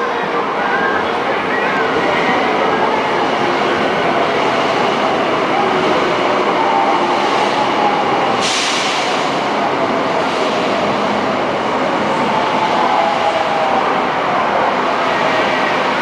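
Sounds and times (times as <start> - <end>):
train wheels rushing on rails: 1.4 - 16.0
hiss: 8.4 - 9.2.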